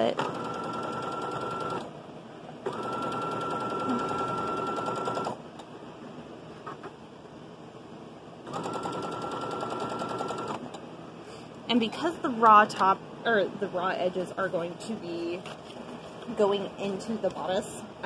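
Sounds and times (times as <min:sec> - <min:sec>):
sewing machine stitching: 0:00.0 - 0:01.8, 0:02.7 - 0:05.4, 0:08.5 - 0:10.6.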